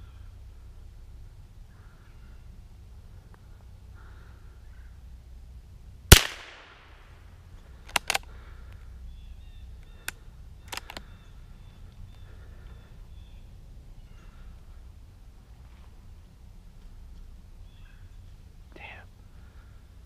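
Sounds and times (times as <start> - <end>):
rifle shot with echo: 6.1 - 7.1
sharp clicks: 7.8 - 8.3, 10.0 - 11.1.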